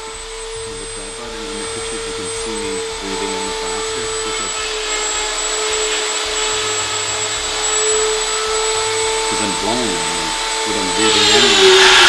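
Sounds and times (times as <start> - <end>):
rotary tool grinding antler: 0.0 - 12.0.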